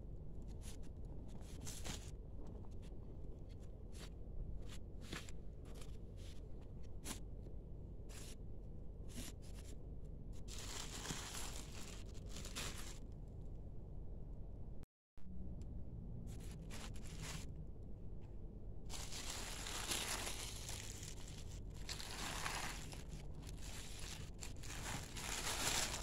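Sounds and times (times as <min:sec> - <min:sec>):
steady low hum: 0:00.0 - 0:26.0
plastic wrapping crinkling: 0:10.5 - 0:13.1, 0:18.9 - 0:26.0.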